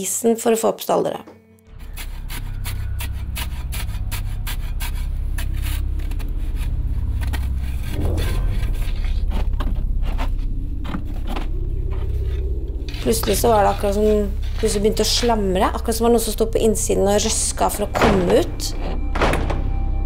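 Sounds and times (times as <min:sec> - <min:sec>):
steady low rumble: 0:06.6 - 0:18.0.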